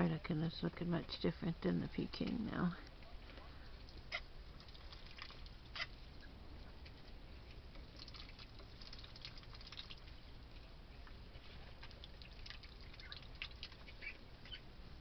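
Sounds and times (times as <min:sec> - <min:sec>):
ducklings peeping: 0:03.7 - 0:14.8.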